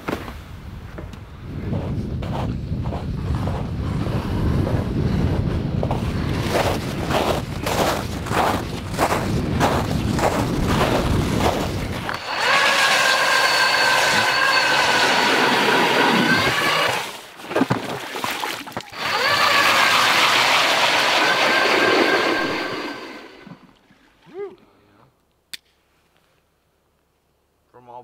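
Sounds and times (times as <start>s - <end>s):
ice auger motor whining: 6.4s - 17.2s, 18.9s - 23.8s.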